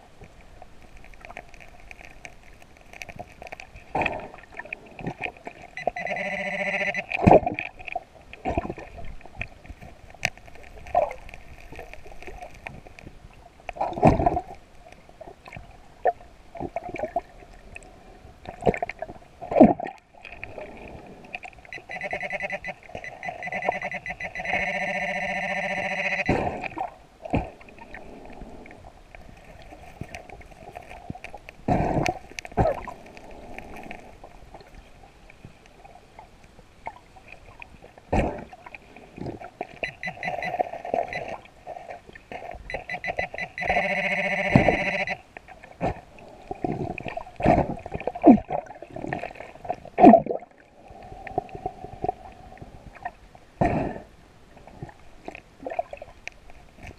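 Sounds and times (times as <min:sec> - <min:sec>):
metal detector buzzing tone: 0:05.8 - 0:07.2, 0:21.7 - 0:26.4, 0:39.8 - 0:41.4, 0:42.7 - 0:45.2.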